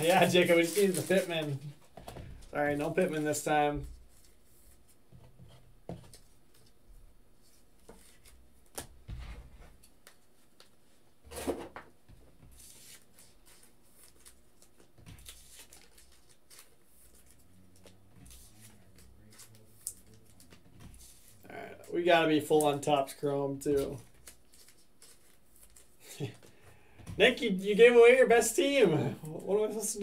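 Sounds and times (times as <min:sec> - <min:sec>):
trading cards clicking and rustling: 0:00.0 - 0:03.5, 0:12.5 - 0:23.1, 0:23.7 - 0:27.2.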